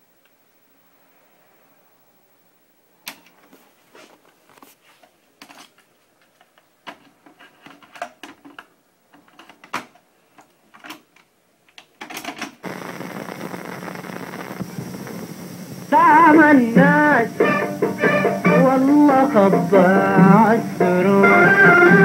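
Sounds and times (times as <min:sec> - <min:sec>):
music: 0:16.0 - 0:22.0.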